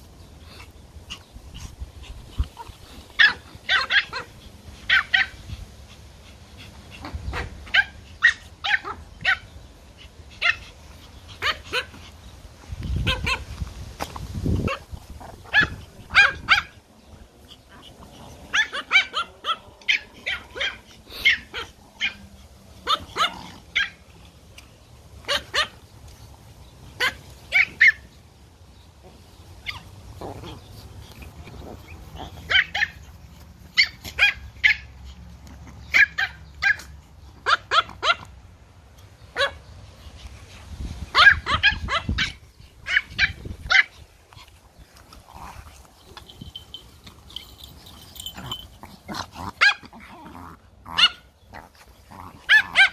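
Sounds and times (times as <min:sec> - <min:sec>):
small dogs barking high-pitched: 0:02.4 - 0:05.5, 0:06.9 - 0:12.1, 0:12.9 - 0:13.6, 0:14.6 - 0:16.8, 0:17.5 - 0:24.1, 0:25.2 - 0:25.8, 0:26.9 - 0:28.1, 0:29.6 - 0:30.7, 0:31.6 - 0:35.0, 0:35.6 - 0:38.4, 0:39.3 - 0:39.7, 0:41.1 - 0:52.9.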